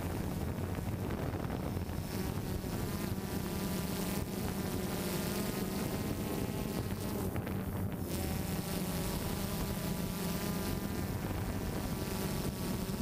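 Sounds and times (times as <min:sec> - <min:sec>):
drone propellers buzzing: 0:00.0 - 0:13.0.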